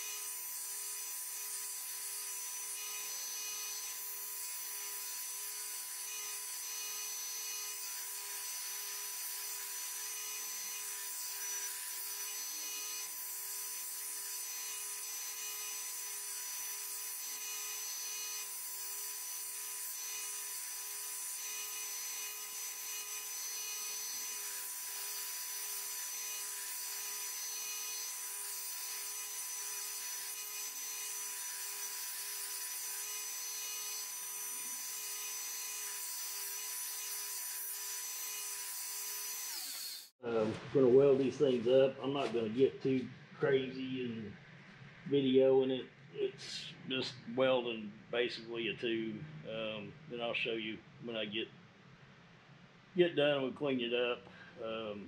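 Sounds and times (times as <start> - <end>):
belt sander grinding steel: 0.0 - 43.8.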